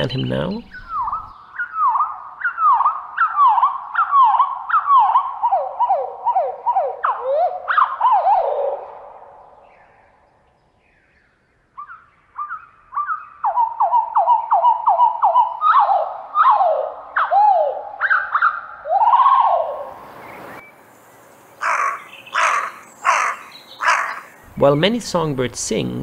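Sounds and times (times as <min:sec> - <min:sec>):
slowed bird song whistles: 0:00.6 - 0:10.4.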